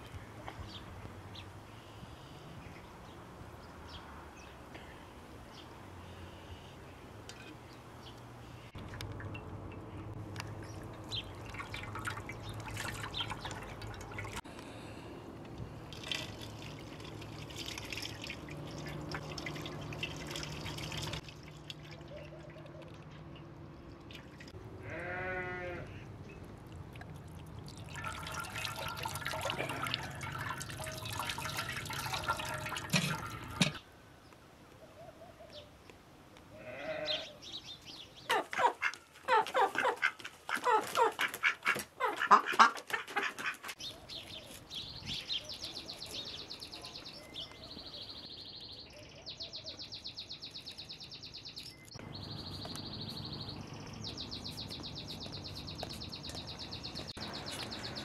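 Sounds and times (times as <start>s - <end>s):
water splashing into metal basin: 10.5s - 14.4s, 15.9s - 22.2s, 27.0s - 33.8s
ducks and chickens calling: 38.2s - 44.6s.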